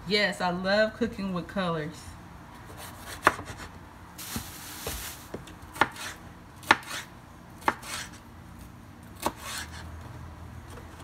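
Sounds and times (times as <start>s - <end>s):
knife slicing pepper: 2.7s - 3.7s, 5.7s - 8.2s, 9.2s - 9.9s.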